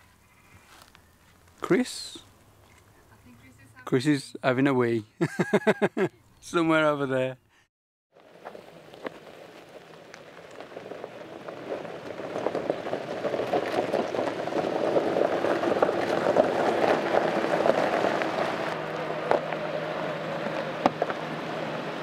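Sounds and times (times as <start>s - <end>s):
tyres crunching on gravel: 0.5s - 3.3s, 8.2s - 22.0s
car engine running low: 8.2s - 22.0s.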